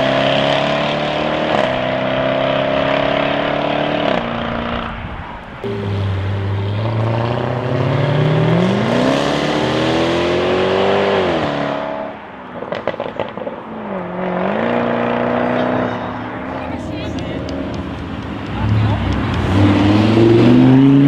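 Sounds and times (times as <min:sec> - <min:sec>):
car engine accelerating: 0:00.0 - 0:21.0
exhaust crackles and pops: 0:17.1 - 0:19.6.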